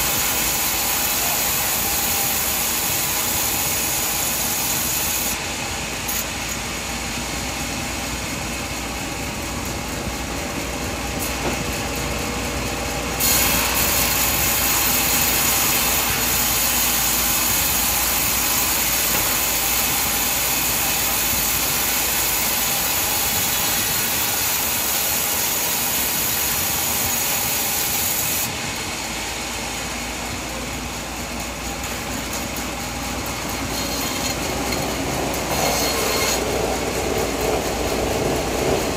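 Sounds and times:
bandsaw cutting wood: 13.2s - 22.6s, 33.7s - 38.8s.

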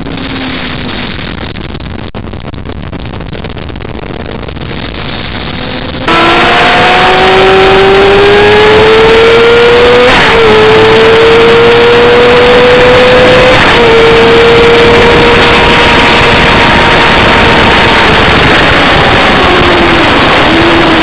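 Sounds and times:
loud rushing noise: 0.0s - 21.0s
car engine accelerating hard: 4.7s - 21.0s.

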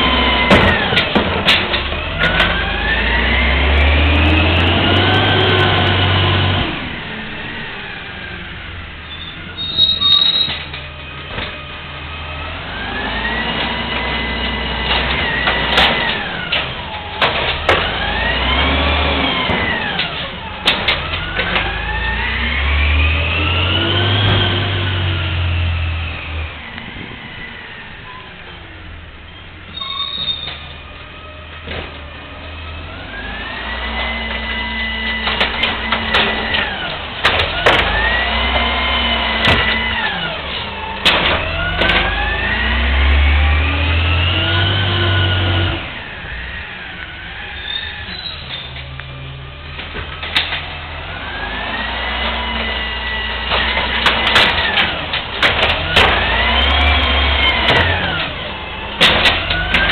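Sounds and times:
garbage truck diesel engine revving: 0.0s - 59.9s
metallic clanks and knocks: 0.4s - 2.7s, 13.5s - 18.2s, 19.4s - 21.8s, 35.0s - 38.7s, 39.4s - 42.2s, 49.7s - 50.9s, 52.2s - 59.9s.

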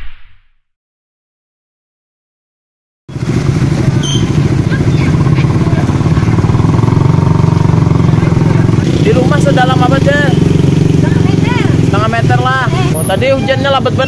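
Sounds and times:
small engine running loudly: 3.1s - 14.0s.

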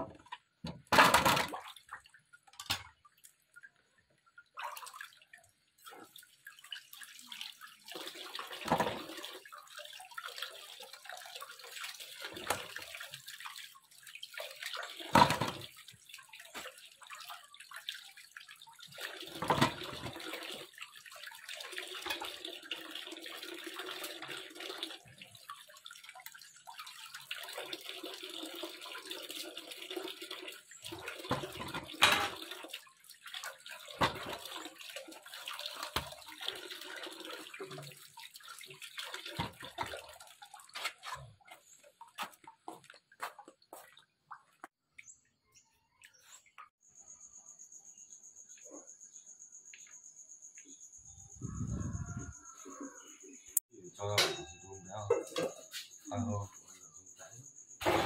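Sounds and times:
water splashing in basin: 0.0s - 45.1s
stream of water running: 0.0s - 47.1s, 50.7s - 58.0s.

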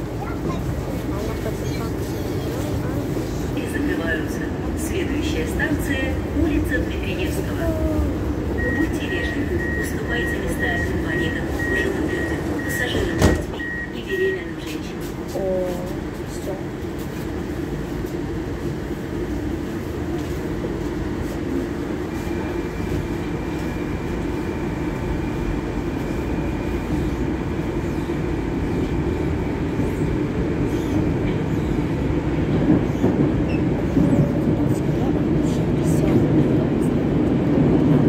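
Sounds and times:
metro train running noise: 0.0s - 38.0s.

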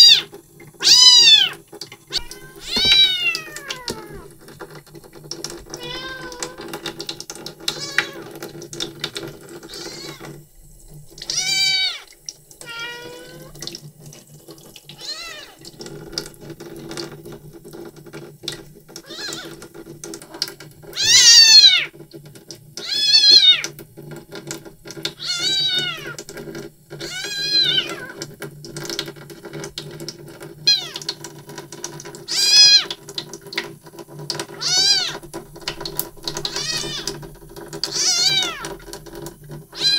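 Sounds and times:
kitten meowing: 0.0s - 4.3s, 5.7s - 6.7s, 7.7s - 8.3s, 9.7s - 10.3s, 11.3s - 13.6s, 15.0s - 15.6s, 19.0s - 19.6s, 21.0s - 21.9s, 22.8s - 23.7s, 25.2s - 26.2s, 27.0s - 28.2s, 30.7s - 31.0s, 32.3s - 32.9s, 34.6s - 35.2s, 36.4s - 37.2s, 37.9s - 38.7s.

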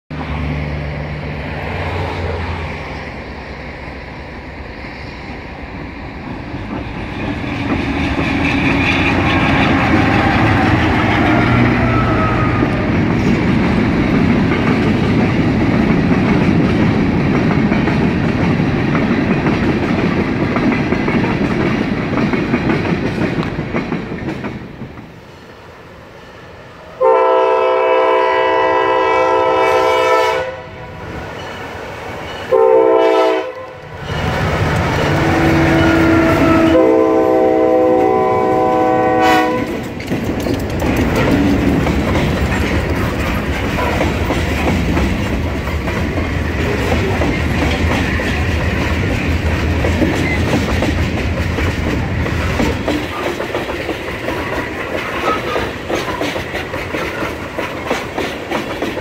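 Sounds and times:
train wheels clattering on rails: 5.2s - 25.3s, 31.0s - 59.0s
locomotive air horn blast: 8.6s - 12.9s, 27.0s - 31.0s, 32.5s - 33.8s, 35.1s - 39.8s.

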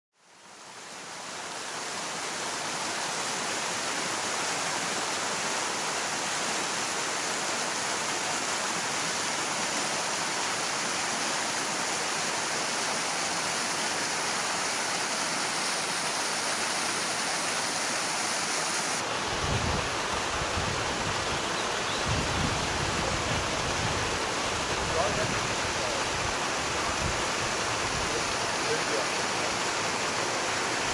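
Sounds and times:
waterfall rushing: 0.6s - 30.9s
low gusty rumbles: 19.3s - 21.4s, 22.0s - 28.1s.

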